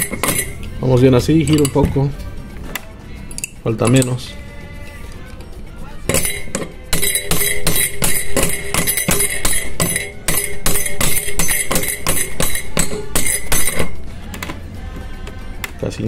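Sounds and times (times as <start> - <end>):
hammer tapping metal pipe: 0.0 - 0.7, 6.1 - 14.5.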